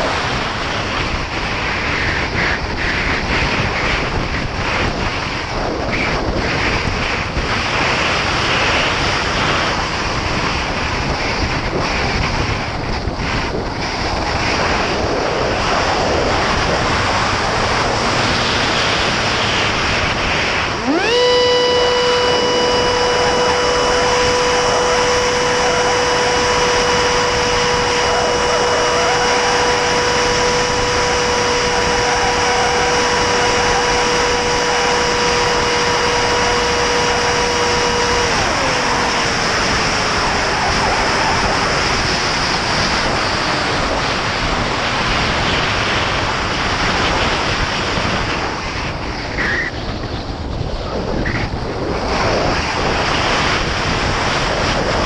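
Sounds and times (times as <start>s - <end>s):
wind rush: 0.0s - 55.0s
electric motor whine: 15.8s - 45.2s
tone sliding down in pitch: 20.8s - 41.4s.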